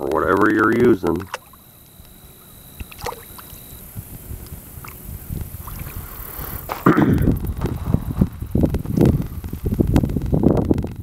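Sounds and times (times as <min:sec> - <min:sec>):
hands sloshing in water: 0:01.2 - 0:01.6, 0:02.8 - 0:03.8.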